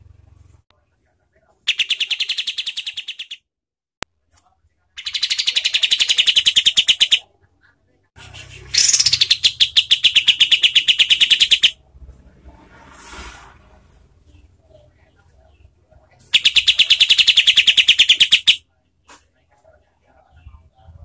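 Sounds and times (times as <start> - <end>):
bulbul rapid rattling song: 1.7 - 3.4, 5.0 - 7.2, 8.2 - 11.8, 16.2 - 18.6.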